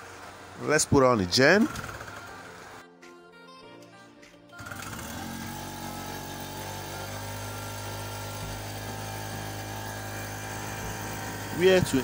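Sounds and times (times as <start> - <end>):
portable generator running: 0.0 - 2.8, 4.6 - 12.0
recoil starter pull: 1.6 - 2.5, 4.6 - 12.0.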